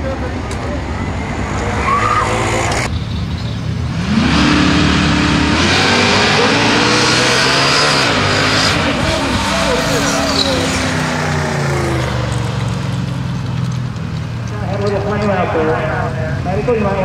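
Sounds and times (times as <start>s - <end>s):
drag racing car engines: 0.0s - 17.0s
engine revving high: 1.2s - 2.9s, 3.9s - 13.2s.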